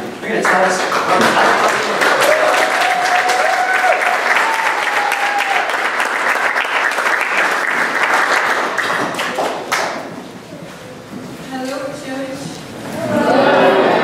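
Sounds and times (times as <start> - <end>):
crowd clapping: 0.3 - 10.2.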